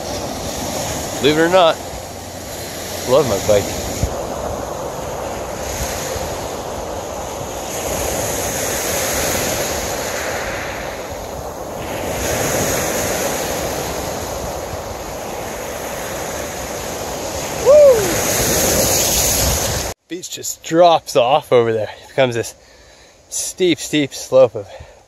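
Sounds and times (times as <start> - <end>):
waves washing up a beach: 0.0 - 20.0
wind on the microphone: 0.0 - 20.0.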